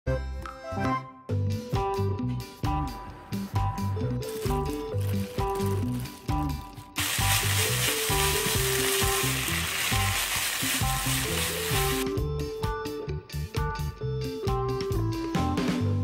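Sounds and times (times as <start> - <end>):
background music: 0.1 - 16.0
greens sizzling in a hot wok: 5.0 - 12.0
chopsticks and spoon tossing food: 7.0 - 12.0.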